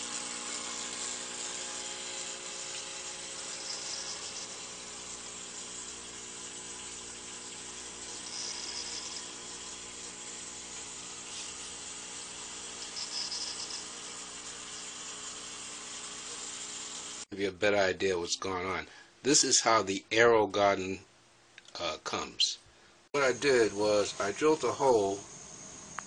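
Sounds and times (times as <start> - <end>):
water trickling into grow bed: 0.0 - 17.3.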